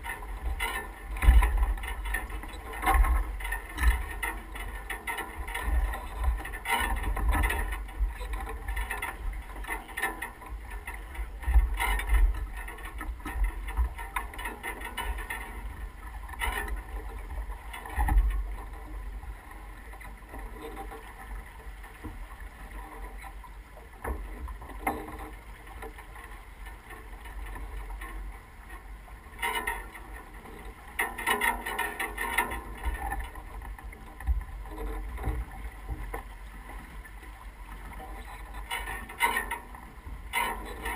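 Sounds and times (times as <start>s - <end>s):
wind buffeting the microphone: 0.0s - 9.7s
water splashing along a hull: 0.0s - 40.9s.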